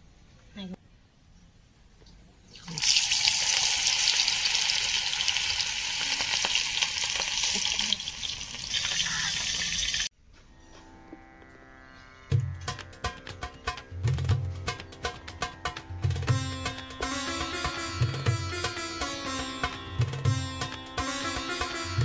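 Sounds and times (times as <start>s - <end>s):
deep-frying sizzle: 2.6s - 10.1s.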